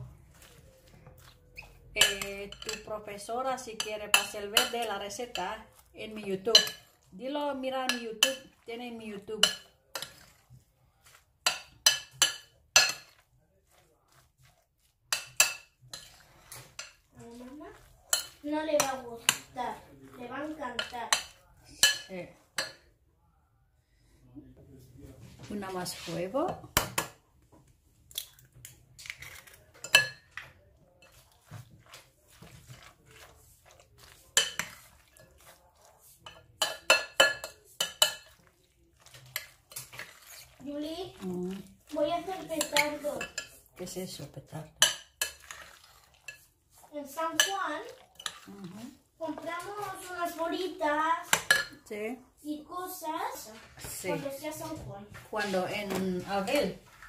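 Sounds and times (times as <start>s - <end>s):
soft mushy scraping: 0.0s - 11.8s, 12.4s - 22.6s, 24.7s - 26.5s, 28.3s - 36.6s, 37.5s - 44.7s, 45.3s - 51.4s, 52.5s - 57.0s
metal spoon clinking glass bowl: 1.6s - 2.9s, 6.4s - 7.0s, 9.4s - 10.3s, 11.4s - 13.2s, 29.8s - 31.2s, 36.2s - 38.4s, 42.6s - 43.6s
fork clinking against glass bowl: 36.2s - 38.4s.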